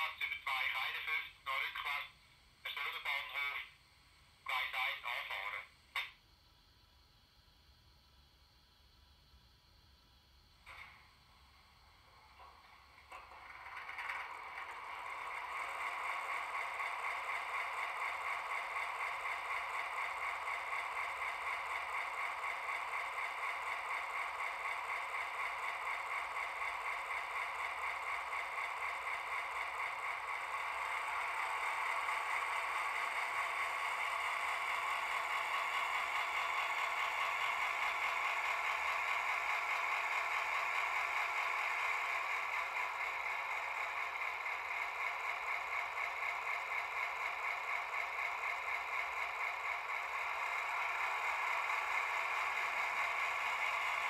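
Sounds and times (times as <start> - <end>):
model diesel engine sound from speaker: 0.0 - 6.2, 10.4 - 54.0.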